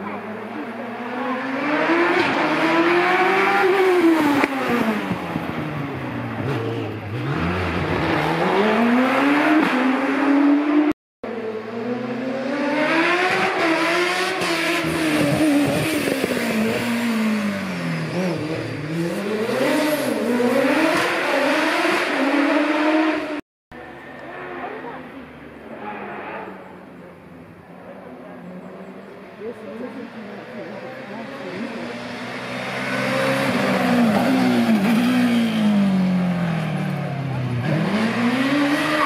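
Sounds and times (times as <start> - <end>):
racing car engines accelerating: 0.0 - 39.0.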